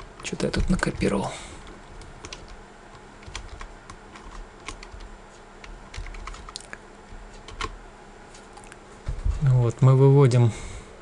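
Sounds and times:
computer keyboard keys clicking: 0.0 - 7.8.

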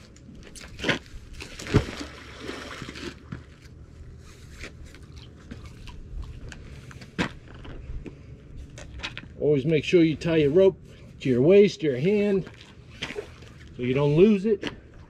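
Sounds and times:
water splash: 0.8 - 3.5.

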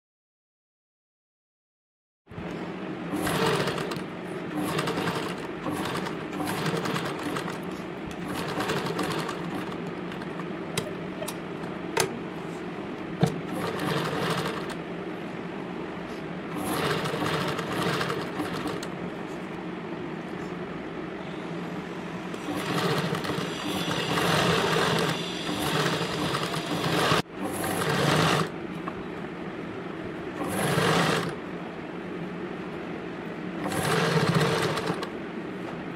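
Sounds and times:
sewing machine humming: 3.0 - 11.7, 13.2 - 14.9, 16.4 - 19.1, 22.3 - 28.6, 30.3 - 31.5, 33.6 - 35.2.

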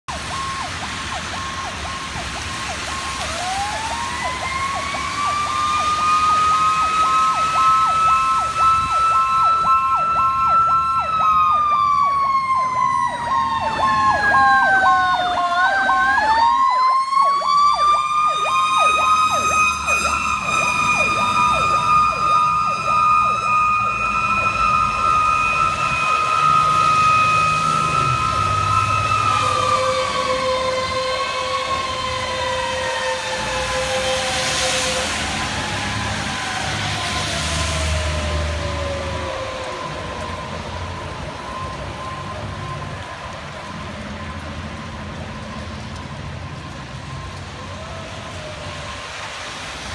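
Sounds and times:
fire engine siren wailing: 0.0 - 49.9
fast electronic siren yelp: 0.2 - 37.6.

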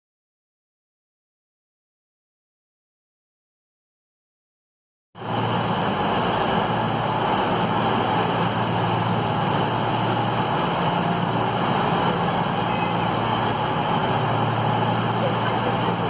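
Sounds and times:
diesel train engines idling: 5.2 - 16.0.

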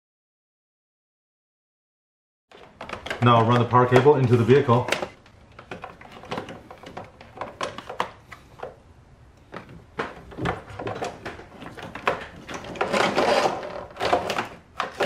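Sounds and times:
cable scraping through grommet: 12.5 - 14.4.

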